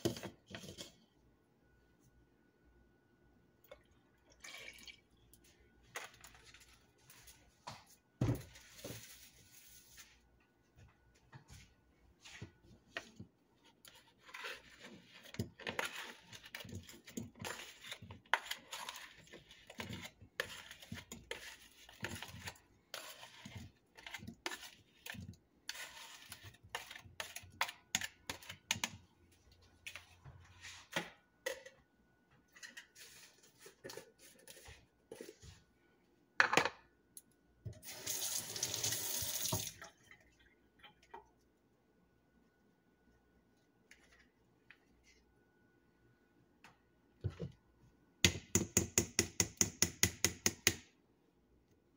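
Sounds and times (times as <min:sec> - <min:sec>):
kitchen clatter and scraping: 0:00.0 - 0:01.2, 0:12.3 - 0:35.6.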